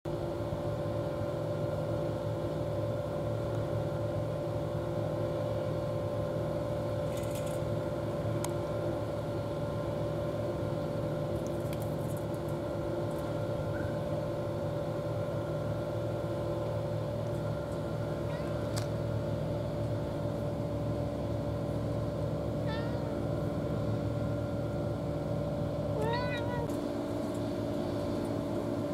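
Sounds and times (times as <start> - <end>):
motor humming: 5.8 - 28.9.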